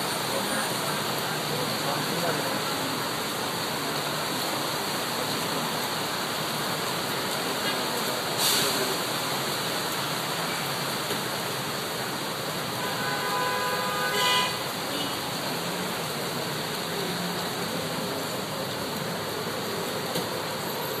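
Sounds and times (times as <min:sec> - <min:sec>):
heavy rain hiss: 0:00.0 - 0:21.0
traffic through flood water: 0:00.0 - 0:21.0
vehicle horn honking: 0:12.8 - 0:15.2.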